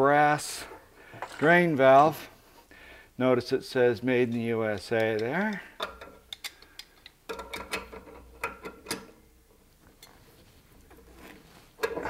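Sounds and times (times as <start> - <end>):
pliers clicking on brass fittings: 4.3 - 9.2.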